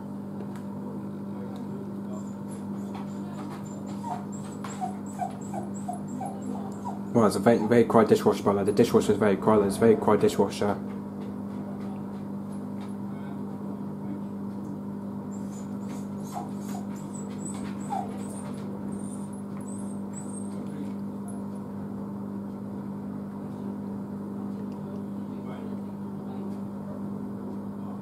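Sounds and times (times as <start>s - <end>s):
dishwasher motor hum: 0.0s - 28.0s.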